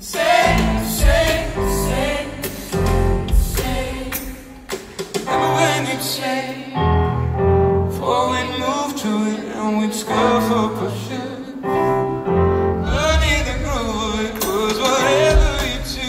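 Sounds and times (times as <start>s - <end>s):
keyboard chords: 0.2s - 4.5s, 5.3s - 16.0s
low bass notes: 0.5s - 3.6s
man singing: 8.0s - 11.7s, 12.8s - 16.0s.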